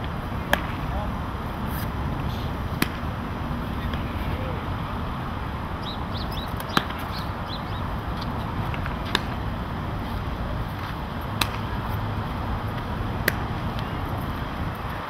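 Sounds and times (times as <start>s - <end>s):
outdoor rumble: 0.0s - 15.0s
baseballs popping into gloves: 0.5s - 0.9s, 2.7s - 3.1s, 8.7s - 9.4s, 10.7s - 11.8s, 12.8s - 14.0s.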